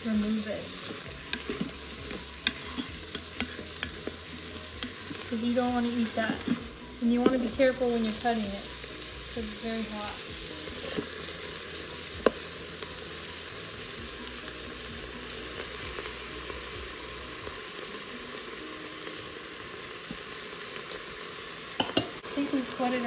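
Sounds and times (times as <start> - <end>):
vegetables sizzling in oil: 0.0 - 23.0.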